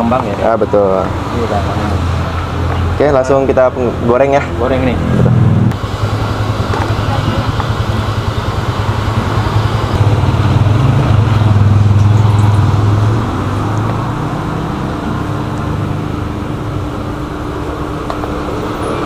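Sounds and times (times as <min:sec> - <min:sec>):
road traffic rumble: 0:00.0 - 0:19.0
vehicle passing close by: 0:00.0 - 0:19.0.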